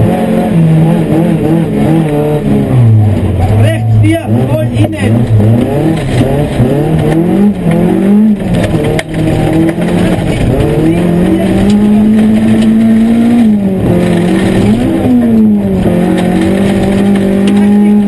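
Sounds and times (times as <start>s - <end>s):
rally car engine revving: 0.0s - 18.0s.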